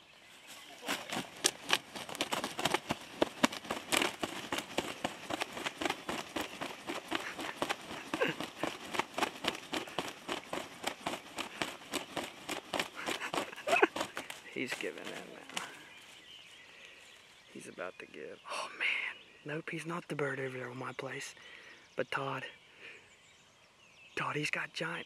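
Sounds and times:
feather rustles and slaps: 0:00.6 - 0:16.1
wings flapping: 0:00.6 - 0:16.2.

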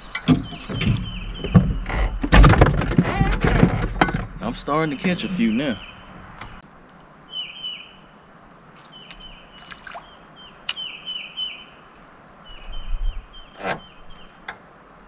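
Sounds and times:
bird chirping: 0:00.0 - 0:02.2, 0:04.1 - 0:06.6, 0:07.3 - 0:08.2, 0:08.8 - 0:14.5.

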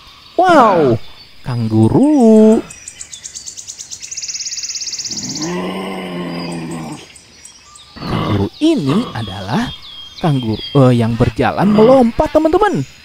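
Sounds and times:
low drawn-out animal call: 0:05.1 - 0:07.2, 0:08.0 - 0:09.7.

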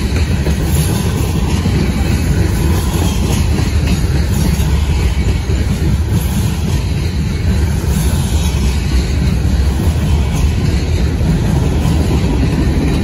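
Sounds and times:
freight train cars rolling on rails: 0:00.0 - 0:13.0.

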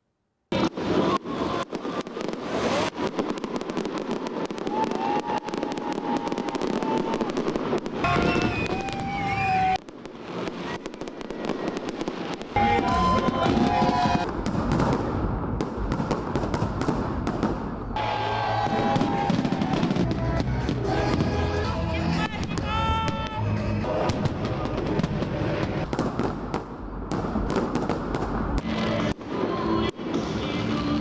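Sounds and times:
fireworks bangs and crackles: 0:00.5 - 0:31.0
crowd voices: 0:04.8 - 0:14.5, 0:16.8 - 0:26.0.

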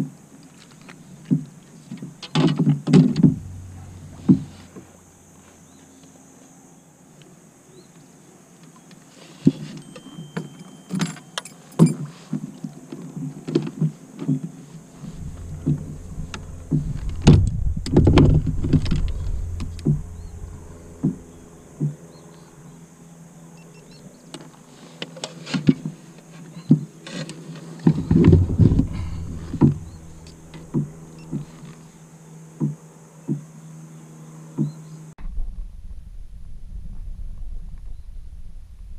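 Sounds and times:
low rumble: 0:03.1 - 0:05.4, 0:14.9 - 0:22.8, 0:27.9 - 0:32.0.

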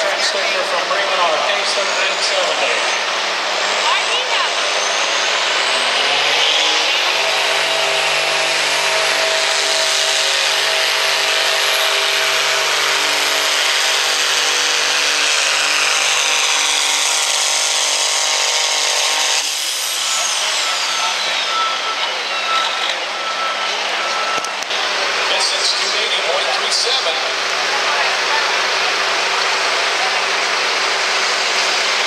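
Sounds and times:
diesel tractor engine under load: 0:00.0 - 0:32.0
turbo whistle: 0:20.0 - 0:24.6.

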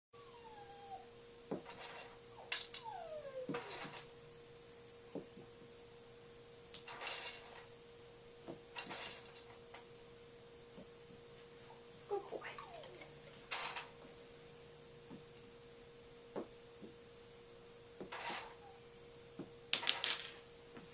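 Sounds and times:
dog whining: 0:00.2 - 0:01.2, 0:02.3 - 0:04.1, 0:11.7 - 0:13.1, 0:18.2 - 0:18.9
faint steady hum: 0:00.2 - 0:20.9.

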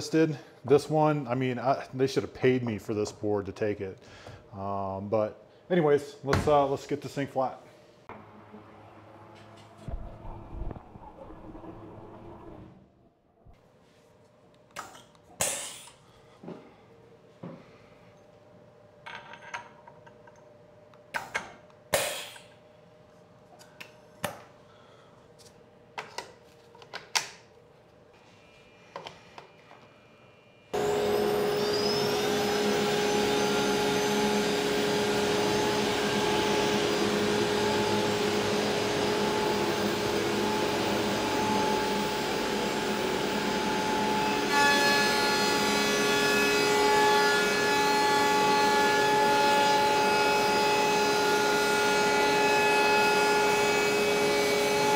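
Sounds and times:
whining tones: 0:08.1 - 0:13.6, 0:30.8 - 0:44.6
router whirring: 0:30.8 - 0:54.9.

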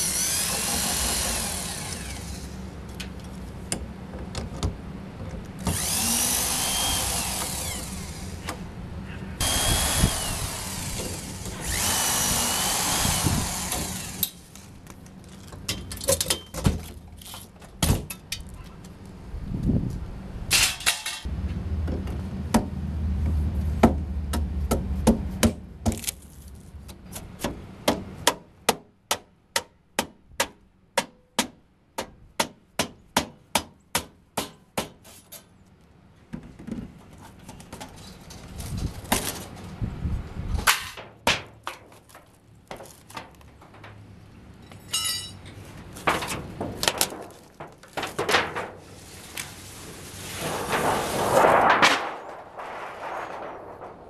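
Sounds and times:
electric drill whining: 0:05.7 - 0:08.4, 0:09.4 - 0:14.3
clicks and knocks of parts: 0:40.6 - 0:48.8.

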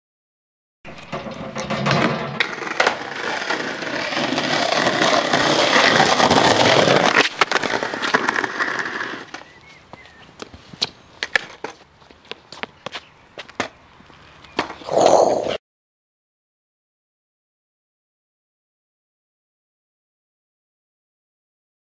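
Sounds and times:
skateboard clacking on pavement: 0:00.9 - 0:14.9
skateboard wheels rolling on paving: 0:00.9 - 0:15.6.

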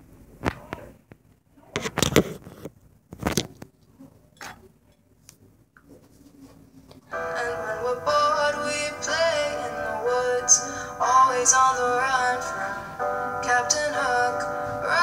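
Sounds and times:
phone being handled: 0:01.8 - 0:03.7
music: 0:07.1 - 0:15.0.

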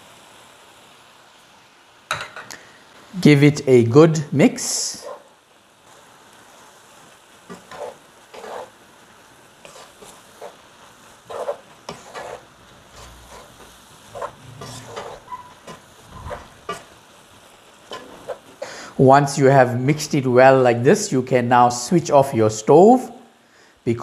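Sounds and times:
faint sizzle: 0:00.0 - 0:24.0
wooden spoon scraping a pan: 0:04.6 - 0:05.3, 0:07.4 - 0:08.8, 0:09.6 - 0:17.2, 0:17.8 - 0:18.8.

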